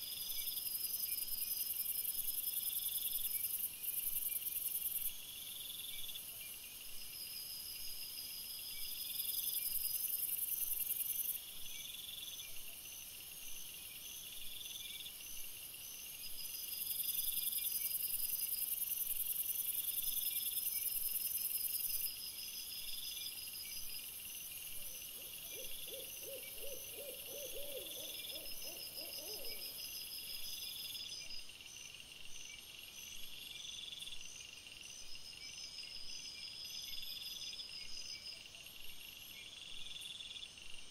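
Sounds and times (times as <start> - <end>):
continuous high hiss: 0.0 - 40.9
crickets chirping: 0.0 - 40.9
low hooting call: 25.3 - 29.8.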